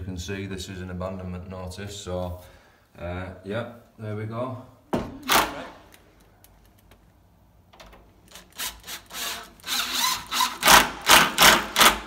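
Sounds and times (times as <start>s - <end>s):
impact driver turning screw: 8.3s - 12.0s.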